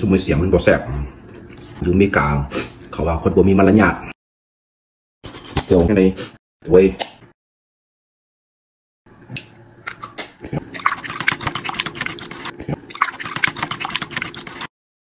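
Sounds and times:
utensil whisking egg in broth: 10.7 - 14.7.

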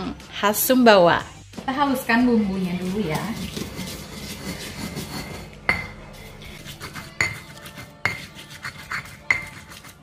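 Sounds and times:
pestle grinding in stone mortar: 2.7 - 10.0.

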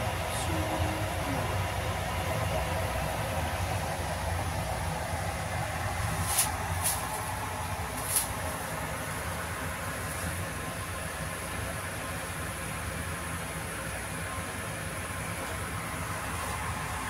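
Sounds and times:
low hum with faint hiss: 0.0 - 12.8.

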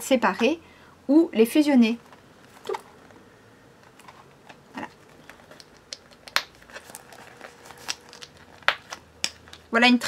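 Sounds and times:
pouches rustling: 3.8 - 9.8.

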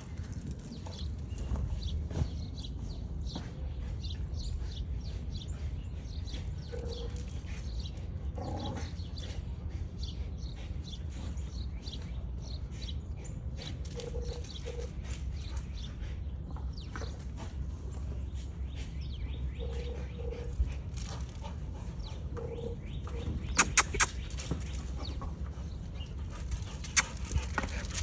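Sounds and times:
dogs making short pitched sounds: 23.6 - 24.2.

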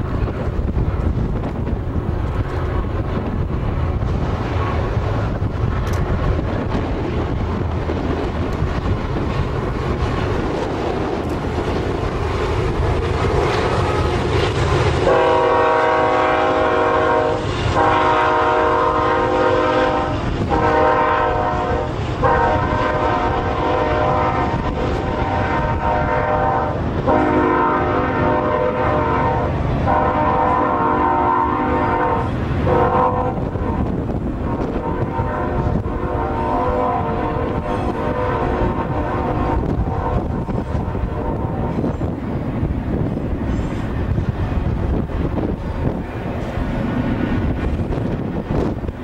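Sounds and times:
diesel locomotives rumbling by: 0.0 - 49.0
wind noise: 0.0 - 49.0
locomotive air horn blasts: 15.0 - 41.9.

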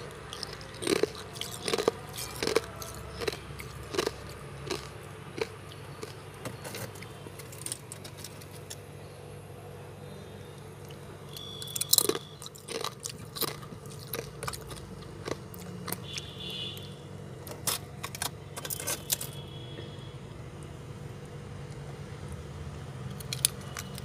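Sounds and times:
ice crunching and cracking: 0.0 - 8.8
steady low hum: 0.0 - 24.0.

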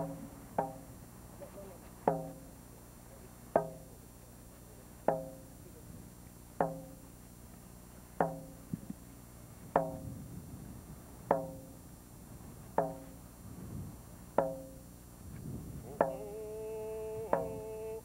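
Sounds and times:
hand drum strikes: 0.0 - 0.9, 2.0 - 2.5, 3.5 - 4.0, 5.0 - 5.5, 6.6 - 7.0, 8.2 - 8.8, 9.7 - 10.1, 11.2 - 11.8, 12.8 - 13.2, 14.4 - 14.8, 15.9 - 16.3, 17.3 - 17.7.

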